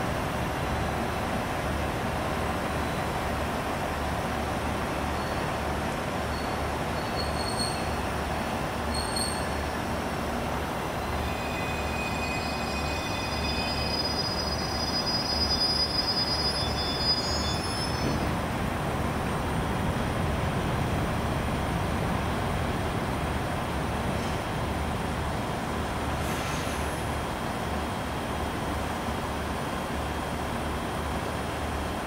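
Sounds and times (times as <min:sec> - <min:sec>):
train running noise: 0:00.0 - 0:32.0
high brake squeal: 0:05.1 - 0:05.5, 0:06.3 - 0:08.2, 0:08.8 - 0:09.9, 0:11.0 - 0:18.4, 0:26.2 - 0:27.0.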